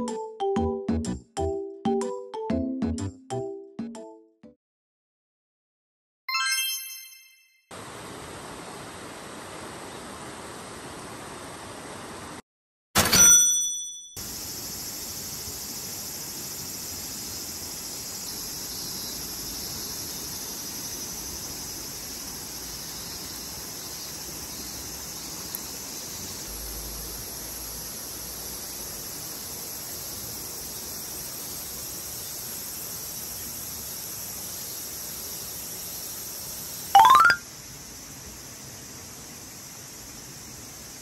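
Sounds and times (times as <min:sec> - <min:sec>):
background hiss: 0:14.2 - 0:41.0
insects droning: 0:14.2 - 0:41.0.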